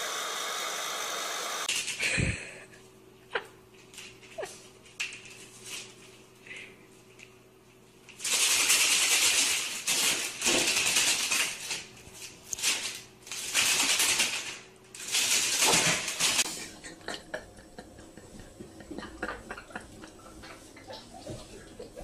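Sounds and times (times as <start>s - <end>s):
cat rustling papers and clothes: 3.7s - 16.7s.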